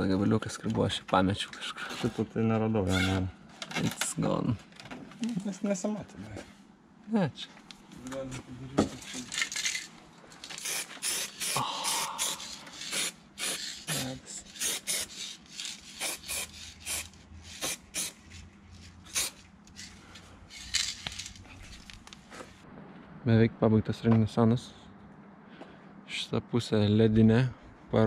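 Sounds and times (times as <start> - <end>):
spray paint can hissing: 10.6 - 18.2, 19.0 - 19.4.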